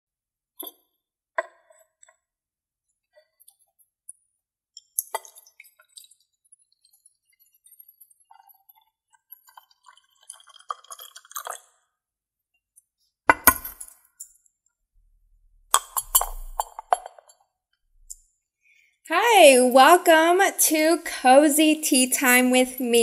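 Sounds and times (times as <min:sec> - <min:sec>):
teapot lid clinking: 0:15.8 - 0:17.1
ceramic clinks: 0:15.8 - 0:17.2.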